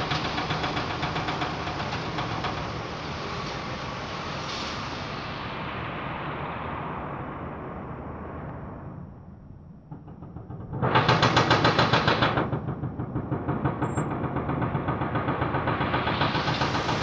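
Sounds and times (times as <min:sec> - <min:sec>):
machinery rattling rapidly: 0:00.0 - 0:03.8, 0:09.9 - 0:17.0.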